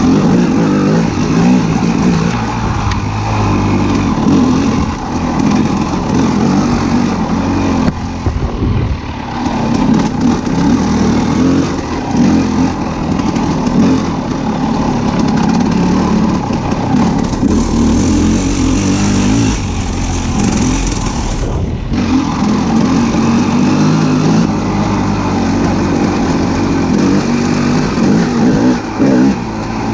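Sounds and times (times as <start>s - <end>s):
vehicle engine running: 0.0s - 29.9s.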